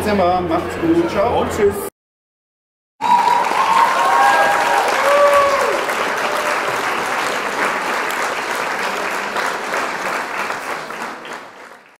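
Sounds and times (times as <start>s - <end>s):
many hands clapping: 3.0s - 12.0s.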